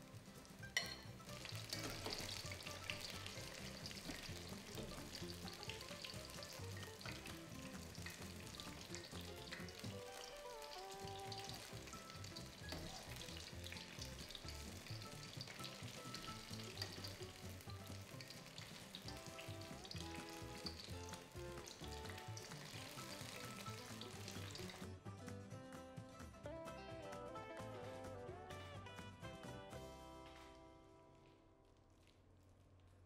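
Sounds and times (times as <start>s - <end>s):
vegetables deep-frying in oil: 0.0s - 25.0s
soft background music: 0.0s - 31.6s.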